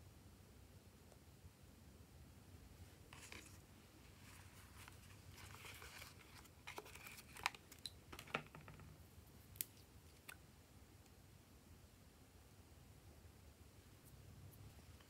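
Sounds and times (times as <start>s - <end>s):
soft plastic rustling: 2.8s - 10.4s.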